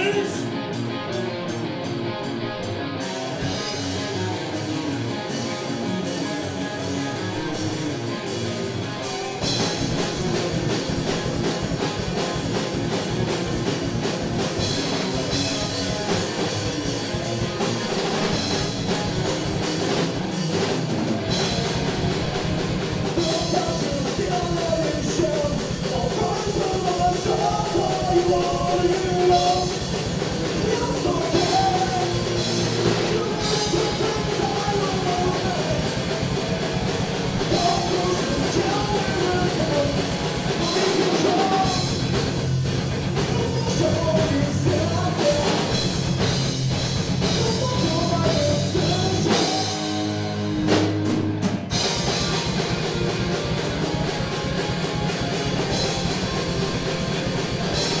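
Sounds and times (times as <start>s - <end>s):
person singing: 0.0s - 1.6s, 23.1s - 29.8s, 30.4s - 36.3s, 37.4s - 42.0s, 43.2s - 45.8s, 47.2s - 50.1s
punk rock band playing live: 0.0s - 58.0s.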